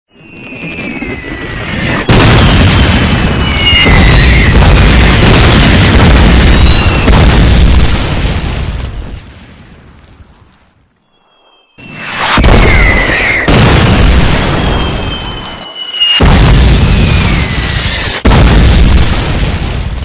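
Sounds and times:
artillery shell whistling: 0.1s - 7.3s, 11.0s - 18.2s
rumble of blasts: 0.1s - 10.4s, 11.2s - 20.0s
explosion: 0.2s - 10.3s, 11.2s - 20.0s.

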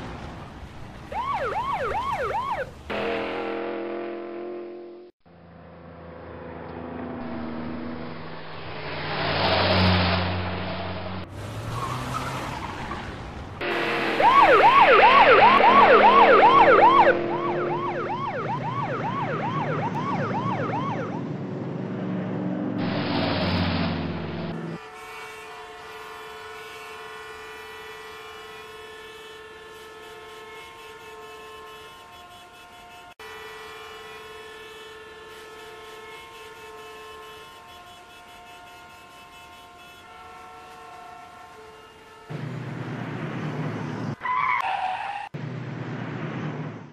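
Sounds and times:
traffic noise: 0.0s - 46.9s
police siren yelping: 1.1s - 2.8s, 13.6s - 21.2s.

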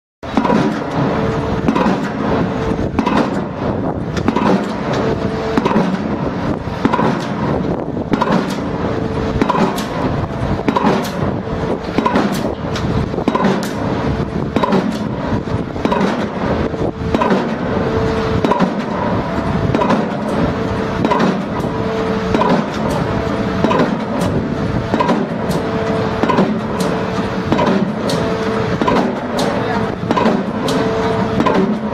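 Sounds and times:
mechanical hum of rig: 0.2s - 31.9s
pile-driving hammer striking: 0.2s - 31.9s.

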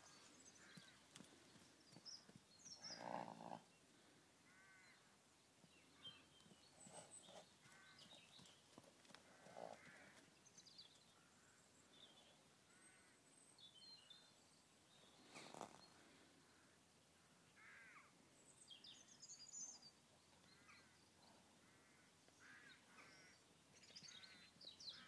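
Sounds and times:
crows cawing: 4.5s - 5.1s, 7.6s - 8.0s, 9.3s - 10.2s, 17.6s - 18.1s, 21.6s - 23.4s.

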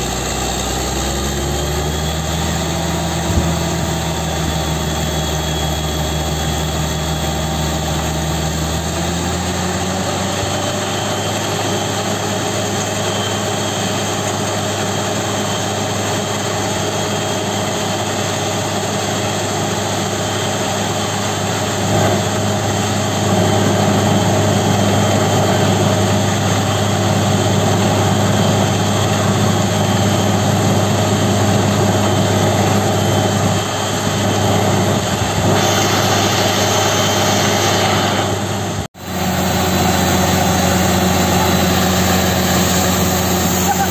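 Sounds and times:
drilling rig engine running hard: 0.0s - 43.9s
water and cuttings blowing out: 39.0s - 43.9s.

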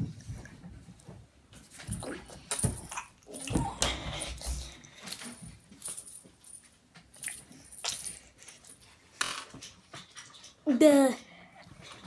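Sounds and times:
metal chain necklace jingling: 5.0s - 9.4s.

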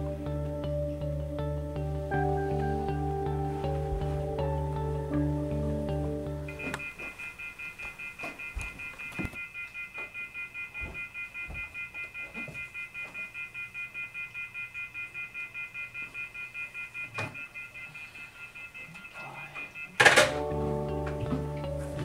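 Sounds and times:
electronic alarm beeping: 6.5s - 20.6s.

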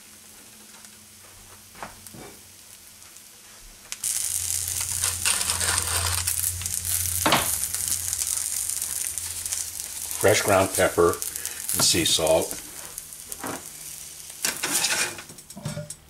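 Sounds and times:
egg sizzling in oil: 0.0s - 15.6s
pepper mill grinding: 4.0s - 15.6s.

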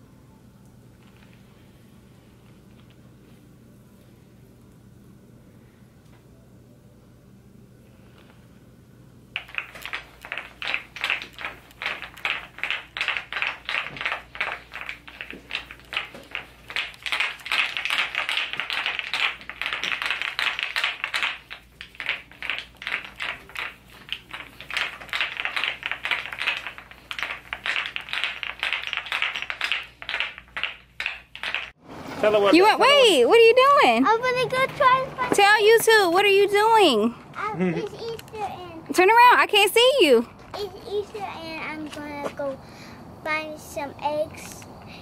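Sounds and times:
wooden roller clacking: 9.4s - 32.6s.

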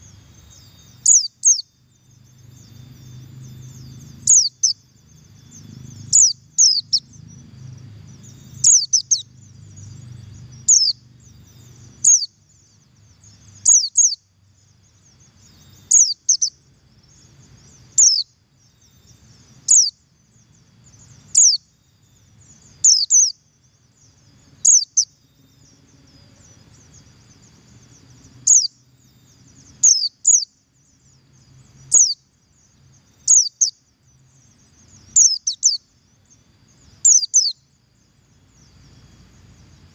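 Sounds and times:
bird high double call: 0.6s - 1.7s, 4.2s - 4.8s, 6.1s - 7.1s, 8.6s - 9.3s, 12.0s - 12.3s, 13.6s - 14.2s, 15.8s - 16.6s, 18.0s - 18.3s, 19.7s - 20.0s, 21.3s - 21.6s, 22.8s - 23.4s, 24.6s - 25.1s, 28.4s - 28.8s, 29.8s - 30.5s, 33.2s - 33.8s, 35.1s - 35.8s, 37.0s - 37.6s.

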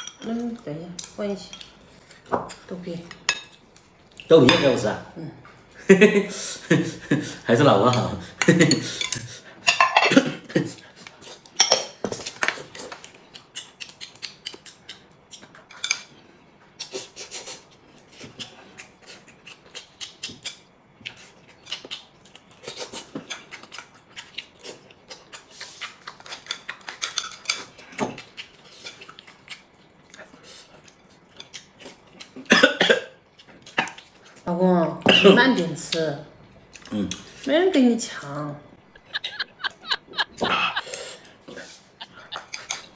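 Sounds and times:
chewing: 12.2s - 32.5s, 39.4s - 42.9s.

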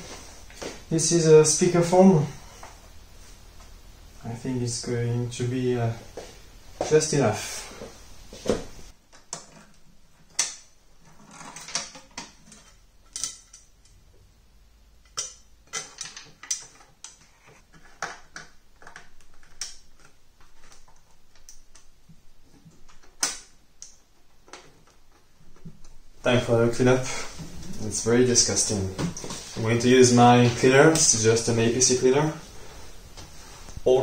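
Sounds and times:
hands handling plastic parts: 15.0s - 25.9s.

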